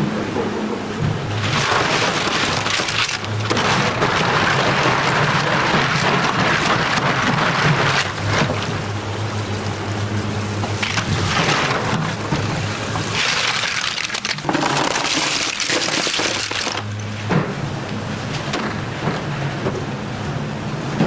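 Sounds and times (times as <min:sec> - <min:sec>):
steady low hum: 0:00.0 - 0:21.0
scrubbing shellfish: 0:01.3 - 0:17.0.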